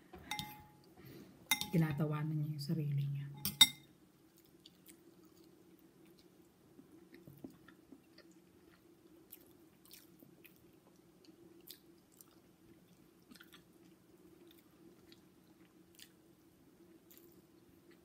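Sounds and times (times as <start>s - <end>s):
low steady hum: 0.0s - 18.0s
people chewing: 4.3s - 16.2s.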